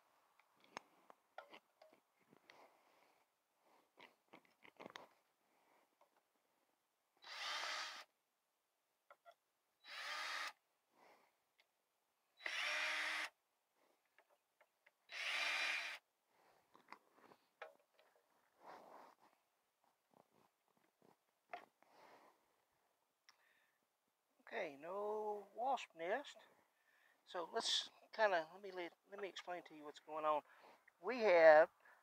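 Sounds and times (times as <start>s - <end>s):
small clicks and handling noises: 0.4s - 2.6s, 3.9s - 5.2s, 16.7s - 18.3s
cordless drill running: 7.2s - 8.1s, 9.8s - 10.6s, 12.4s - 13.4s, 15.1s - 16.0s.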